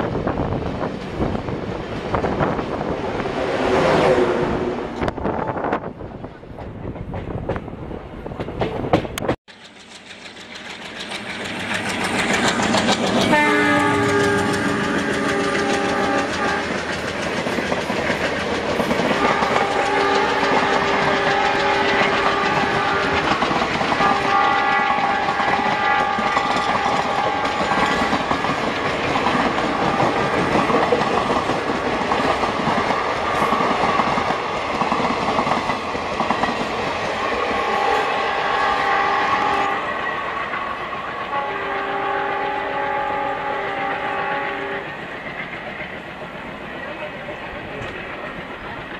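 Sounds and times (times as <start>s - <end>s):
train wheels and rail clatter: 0.0s - 48.9s
locomotive horn blasts: 13.3s - 16.8s, 19.1s - 23.3s, 24.0s - 28.1s, 37.6s - 39.9s, 41.3s - 44.8s.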